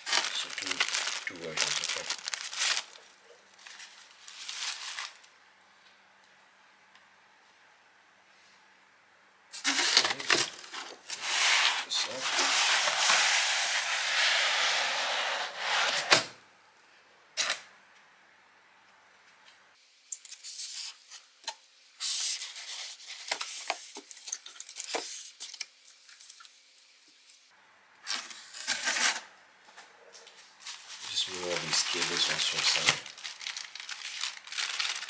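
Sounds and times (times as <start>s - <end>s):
cardboard packaging rustling: 0.0s - 5.3s, 30.6s - 35.0s.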